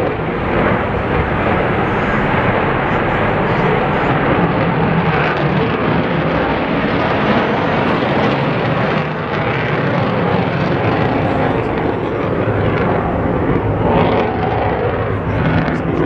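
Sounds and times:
jet engine flying overhead: 0.0s - 16.0s.

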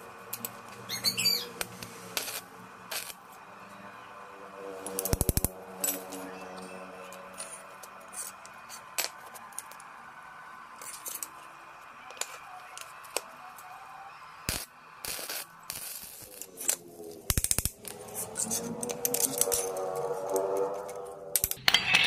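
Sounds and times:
arc welder crackling: 0.0s - 3.6s, 4.5s - 21.6s
steel parts clinking: 4.9s - 9.9s, 10.8s - 11.5s, 16.2s - 22.0s.

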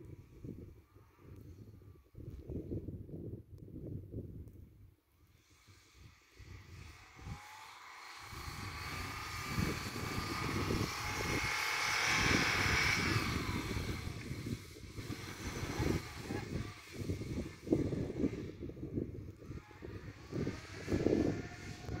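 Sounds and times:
car engine working under load: 7.0s - 17.7s.

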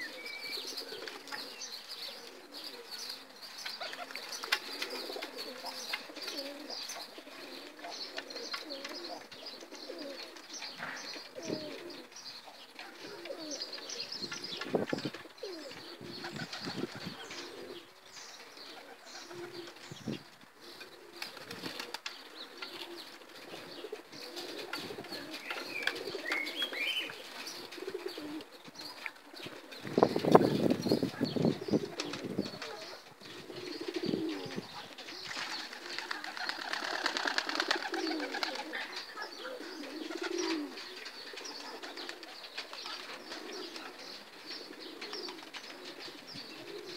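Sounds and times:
pigeons cooing: 0.0s - 46.9s
wings fluttering: 14.2s - 17.2s, 21.0s - 28.4s, 29.0s - 39.2s.

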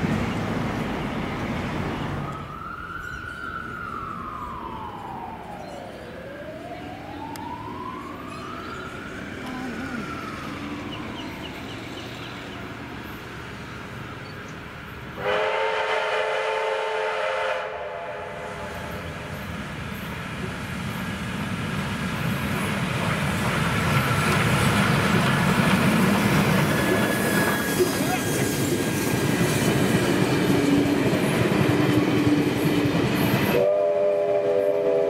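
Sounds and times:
train rumbling past: 0.0s - 35.0s
steam locomotive chime whistle: 15.2s - 19.0s, 33.5s - 35.0s.

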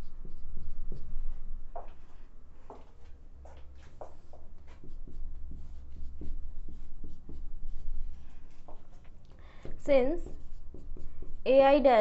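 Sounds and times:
marker squeaking on whiteboard: 3.9s - 9.2s, 9.9s - 11.8s.

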